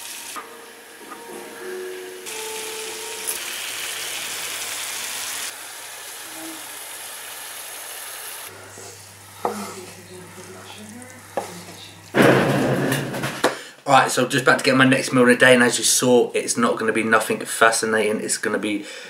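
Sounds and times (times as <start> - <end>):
meat sizzling in a frying pan: 0.0 - 0.4, 2.3 - 8.5
spatula scraping meat: 8.5 - 12.1.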